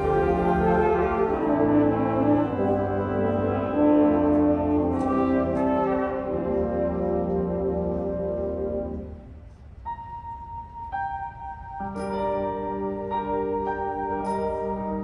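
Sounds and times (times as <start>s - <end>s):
concert band playing chords: 0.0s - 8.4s.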